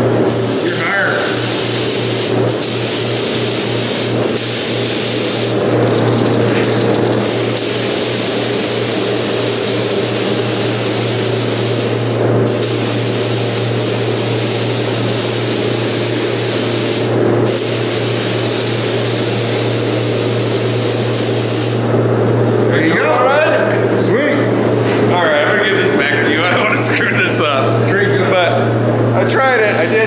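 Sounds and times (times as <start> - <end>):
spray gun hissing: 0.3 - 21.9, 29.4 - 30.0
steady low hum: 20.4 - 30.0.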